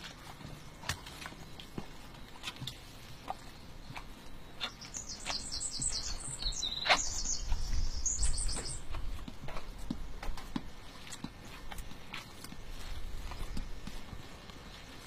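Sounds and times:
rustles of straw bedding: 0.0 - 15.0
songbird chirping: 0.0 - 15.0.

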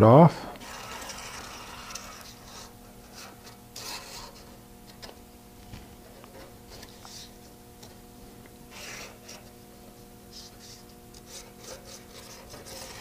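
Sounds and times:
steady low hum: 0.0 - 13.0
marker scratching on steel: 0.6 - 4.5, 8.7 - 9.5, 10.3 - 13.0.

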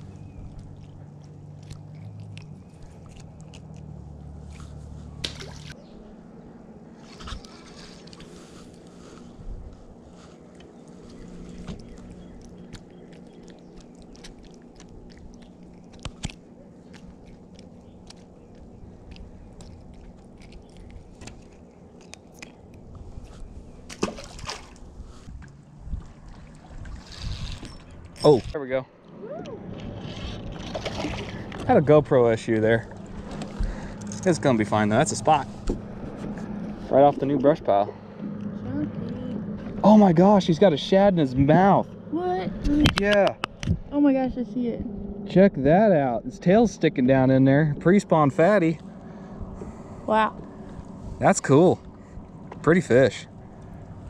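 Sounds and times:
soft wet squishes: 0.0 - 5.8, 7.0 - 27.1
low steady hum: 0.0 - 54.0
fish splashing into water: 4.5 - 5.8, 23.8 - 24.9, 30.0 - 31.6.

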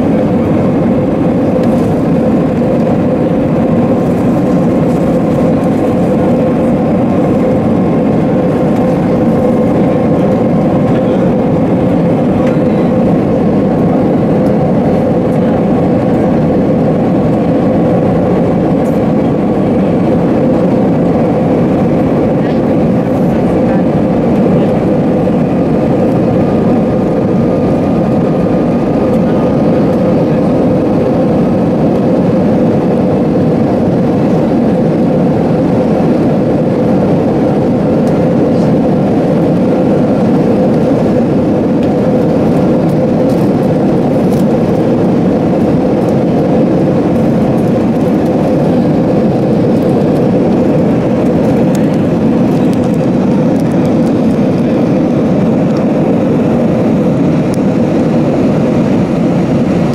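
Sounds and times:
jet engine drone in cabin: 0.0 - 59.9
steady hum: 0.0 - 59.9.

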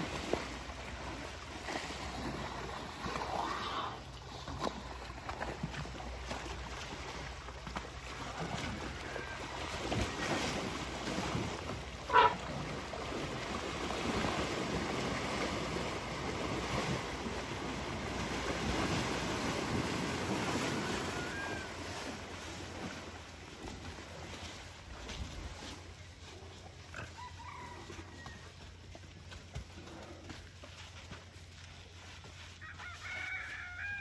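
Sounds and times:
water splashing and sloshing: 0.0 - 34.0
elephant high-pitched call: 12.1 - 12.4.

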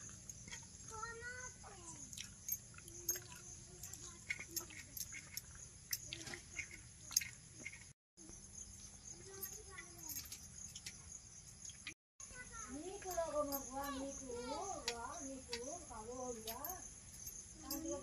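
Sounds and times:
wet chewing and lip smacks: 2.0 - 3.5
fingers working food on steel plate: 2.3 - 7.9.

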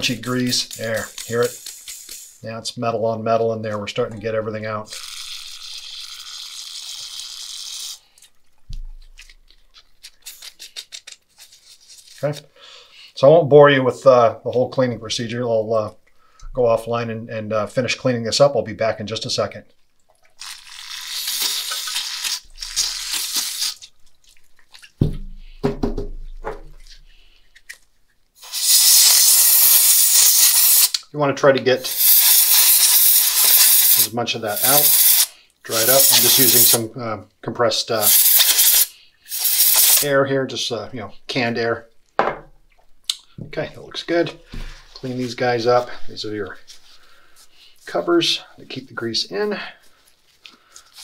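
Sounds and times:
aerosol spray hissing: 0.0 - 2.4, 28.4 - 31.0, 31.8 - 36.8, 38.0 - 40.1
canned air blowing: 0.0 - 2.4, 28.4 - 31.0, 31.8 - 36.8, 38.0 - 40.1
spray can put down thump: 25.0 - 26.8.

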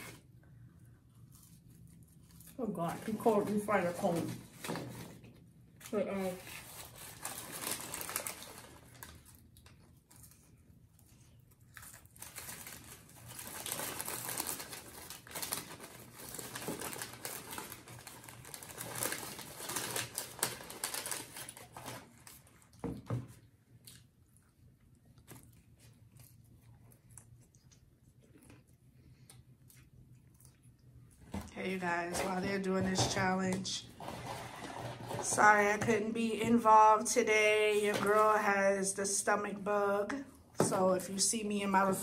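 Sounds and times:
paper wrappers crinkling: 1.2 - 22.8.

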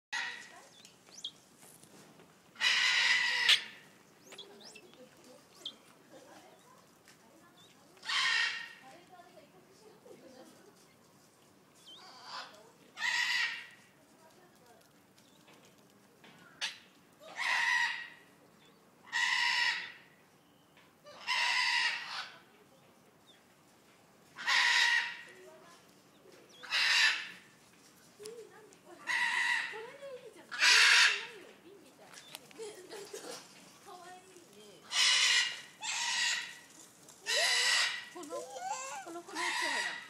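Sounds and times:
guineafowl rasping calls: 2.6 - 4.8, 21.1 - 22.4, 24.4 - 25.4, 26.6 - 27.5, 29.0 - 29.8, 30.5 - 31.3, 34.9 - 40.0
harsh rasping bird call: 34.9 - 40.0.

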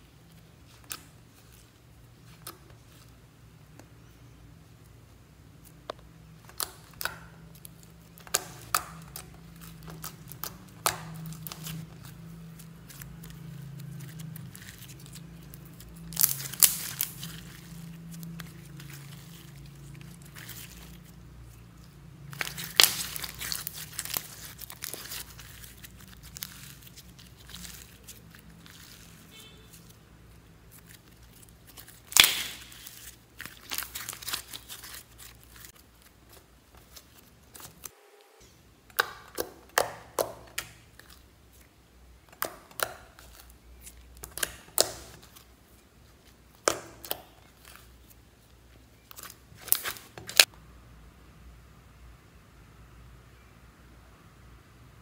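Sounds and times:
hands squeezing slime: 5.6 - 37.9, 38.9 - 50.5
wet pops and crackles: 31.9 - 32.9.

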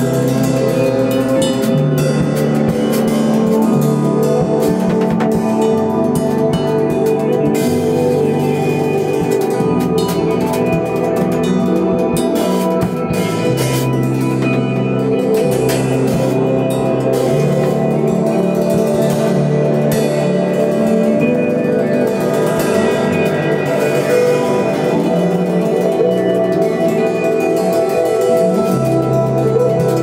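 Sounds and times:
bass line: 0.0 - 30.0.

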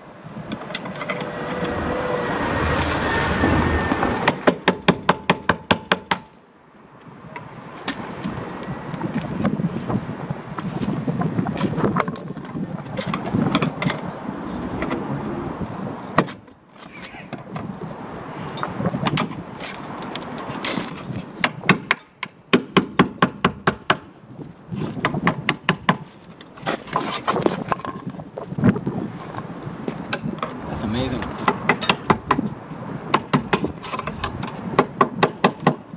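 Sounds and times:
sharp knocks: 4.2 - 6.3, 31.2 - 32.5
rusted metal tearing and crunching: 18.9 - 22.2, 22.9 - 28.6, 31.3 - 34.8.

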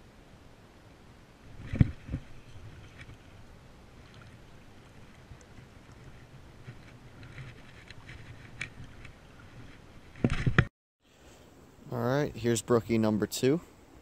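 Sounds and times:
rustles: 0.0 - 12.8.

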